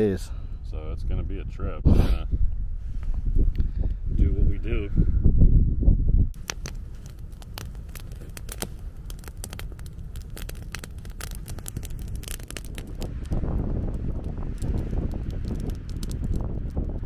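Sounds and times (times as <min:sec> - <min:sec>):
campfire crackling and popping: 0:06.3 - 0:17.0.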